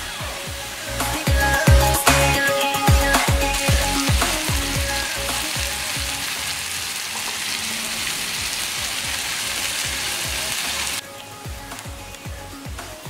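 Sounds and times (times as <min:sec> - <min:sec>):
background music with thumping beat: 0:00.0 - 0:06.2, 0:11.3 - 0:13.0
masala sizzling in a frying pan: 0:04.1 - 0:11.0.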